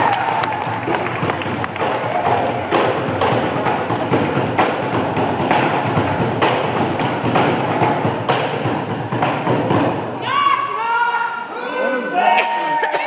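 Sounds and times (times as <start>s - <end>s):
drumsticks beating plastic bins: 0.0s - 10.0s.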